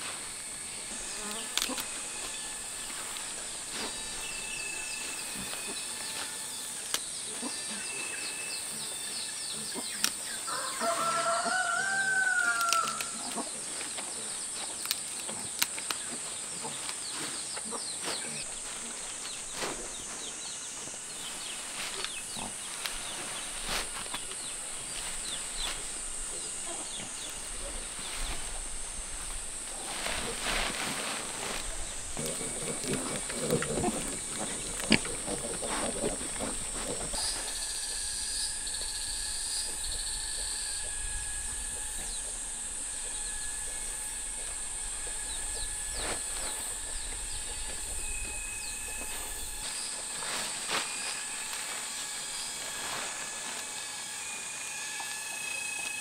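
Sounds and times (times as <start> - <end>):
leafy greens snapping and rustling: 0.0 - 7.1, 9.8 - 37.7, 45.1 - 54.1
high-pitched insect drone: 0.0 - 17.0, 17.6 - 56.0.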